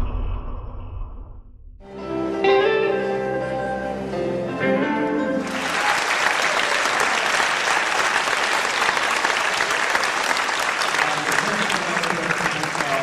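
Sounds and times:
audience applauding: 0:05.4 - 0:13.0.

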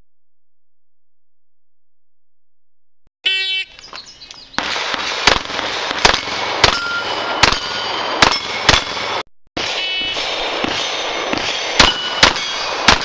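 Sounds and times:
pistol shots: 0:04.6 - 0:13.0
steel plate ringing: 0:06.6 - 0:09.1, 0:10.2 - 0:13.0.

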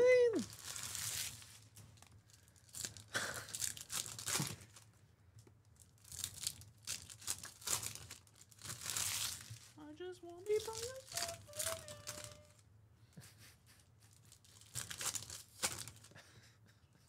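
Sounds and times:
foil wrappers tearing and crinkling: 0:00.4 - 0:04.9, 0:05.8 - 0:09.8, 0:10.4 - 0:12.6, 0:14.1 - 0:16.1.

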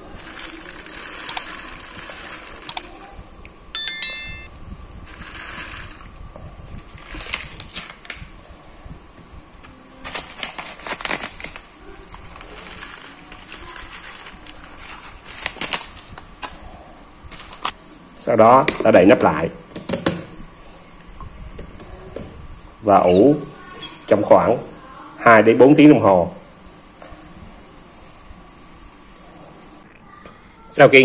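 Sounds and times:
foil packet crinkling: 0:00.0 - 0:02.7, 0:10.0 - 0:16.6
seeds poured into water: 0:00.1 - 0:02.7
bell-like chime: 0:03.8 - 0:04.5.

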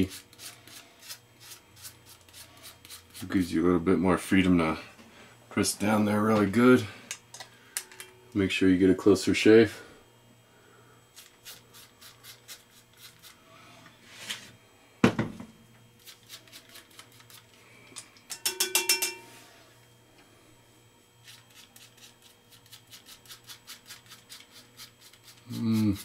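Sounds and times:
razor scraping through stubble: 0:00.0 - 0:03.6, 0:11.2 - 0:13.4, 0:21.2 - 0:26.0
ringing clatter: 0:18.3 - 0:19.3.

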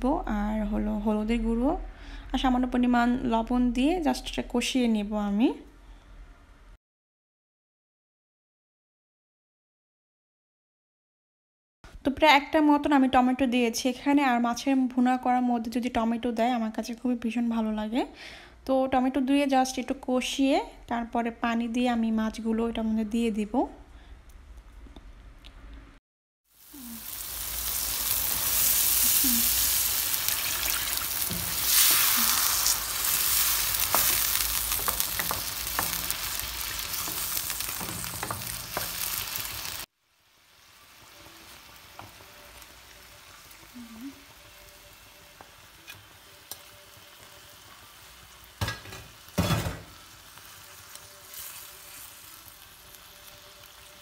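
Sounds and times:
masala sizzling in hot oil: 0:26.5 - 0:54.0
spoon scraping a pan: 0:29.7 - 0:39.7
spoon knocking on a pan: 0:33.9 - 0:36.2.

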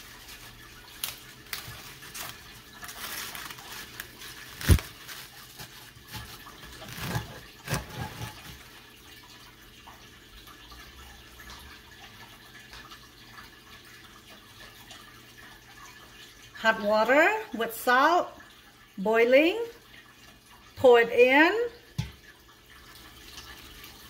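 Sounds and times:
wet leaves rustling: 0:00.0 - 0:08.3.

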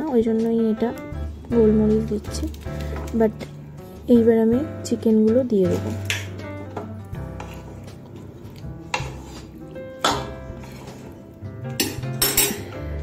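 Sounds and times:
spatula scraping frying pan: 0:07.2 - 0:08.1, 0:08.7 - 0:11.2.

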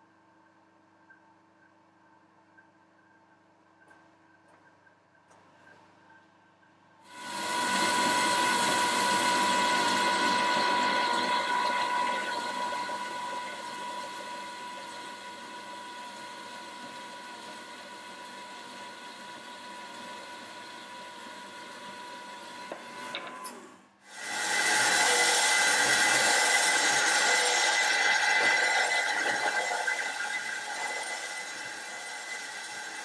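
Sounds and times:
bandsaw cutting metal: 0:24.1 - 0:33.0.

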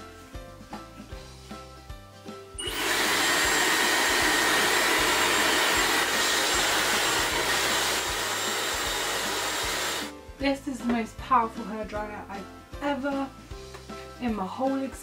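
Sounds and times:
hair dryer blowing: 0:02.6 - 0:10.1.

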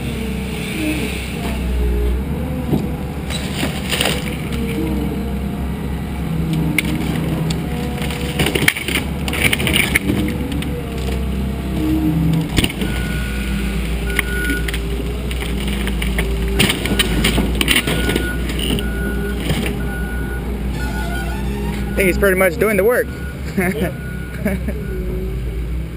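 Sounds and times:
diesel engine under load: 0:00.0 - 0:25.9
wood cracking and splintering: 0:02.7 - 0:05.0, 0:06.5 - 0:13.1, 0:13.8 - 0:19.9
backup alarm beeping: 0:12.8 - 0:14.7, 0:17.8 - 0:25.0.

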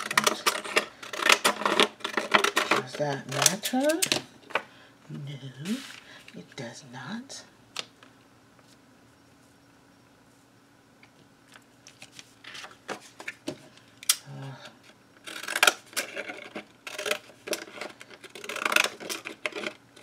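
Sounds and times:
paper rustling: 0:05.6 - 0:06.3.

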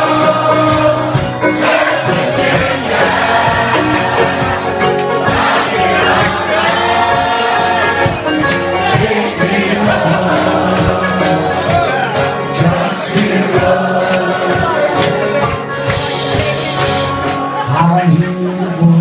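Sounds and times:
frame drum beaten: 0:00.0 - 0:16.8
acoustic guitar strummed: 0:00.0 - 0:19.0
person singing: 0:05.4 - 0:19.0.

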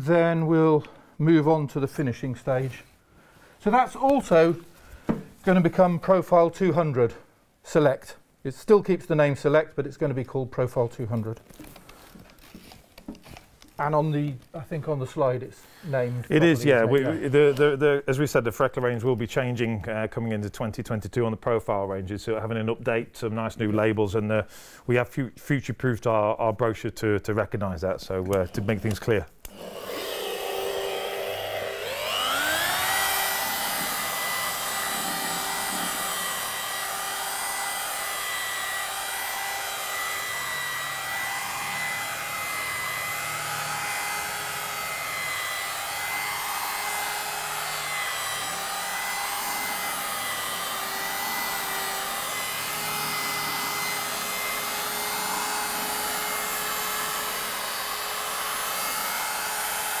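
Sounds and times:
rotary polisher whine: 0:29.5 - 1:00.0.

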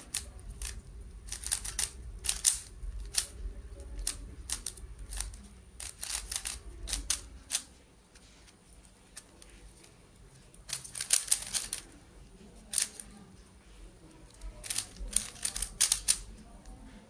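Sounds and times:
puzzle cube turns clicking: 0:00.0 - 0:07.7, 0:10.6 - 0:11.9, 0:12.7 - 0:13.1, 0:14.3 - 0:16.4.

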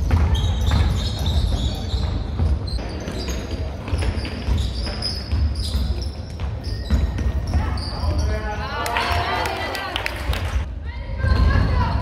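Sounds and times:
basketball bouncing: 0:00.0 - 0:02.8
shoes squeaking on hardwood: 0:00.3 - 0:08.5.

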